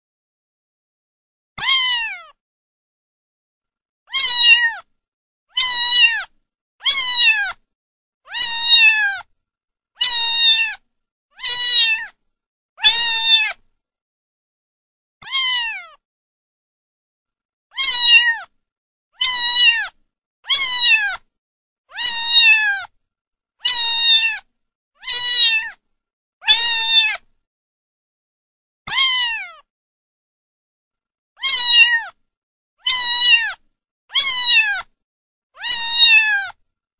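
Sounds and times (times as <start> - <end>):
cat meowing: 1.6 - 2.4, 4.1 - 4.9, 5.5 - 7.6, 8.3 - 9.3, 10.0 - 10.8, 11.4 - 12.2, 12.8 - 13.6, 15.2 - 16.0, 17.7 - 18.5, 19.2 - 21.3, 21.9 - 22.9, 23.6 - 25.8, 26.4 - 27.3, 28.9 - 29.7, 31.4 - 32.2, 32.8 - 34.9, 35.6 - 36.6.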